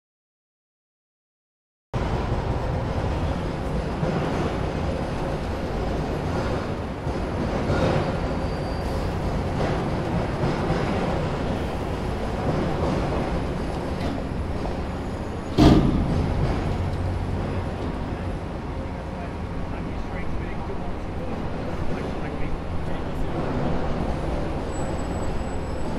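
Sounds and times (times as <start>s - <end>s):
heavy vehicles and city traffic: 2.0s - 25.9s.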